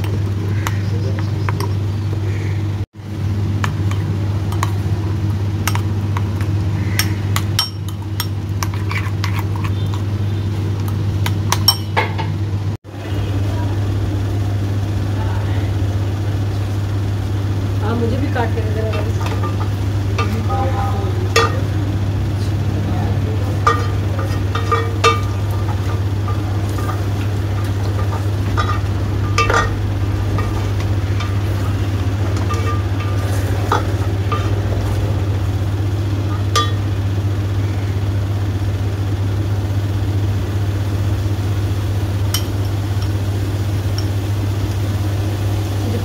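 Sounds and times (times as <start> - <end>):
constant low hum: 0.0 - 46.0
spatula scraping a metal pot: 8.6 - 10.0
food sizzling: 12.9 - 46.0.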